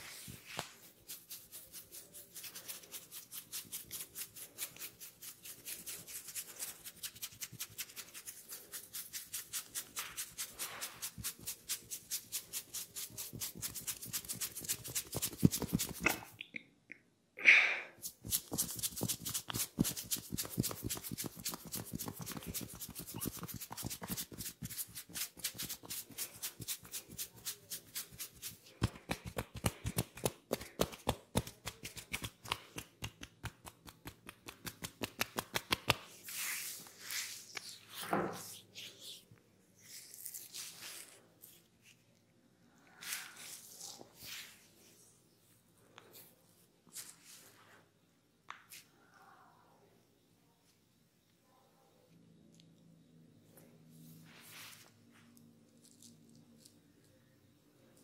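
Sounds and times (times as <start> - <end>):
fingers rubbing oiled hair: 18.0 - 37.8.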